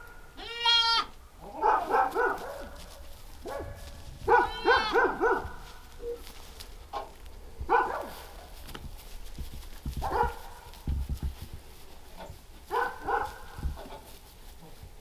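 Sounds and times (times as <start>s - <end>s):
goat kids bleating: 0.3s - 1.6s, 4.4s - 5.1s.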